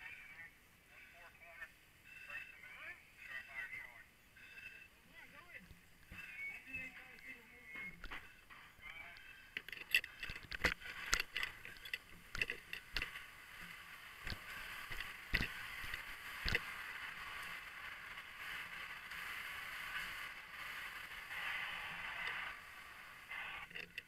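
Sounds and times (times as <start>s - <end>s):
fire hose water hissing: 13.1s - 23.8s.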